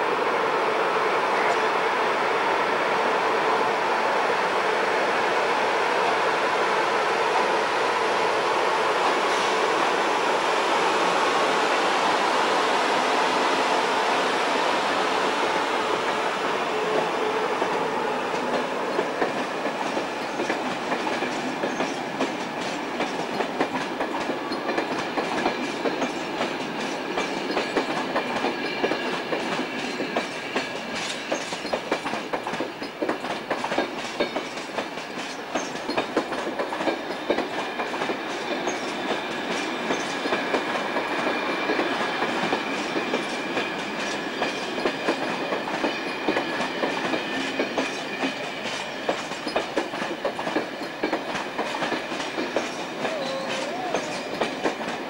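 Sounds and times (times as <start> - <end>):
train wheels clickety-clack: 15.9 - 55.0.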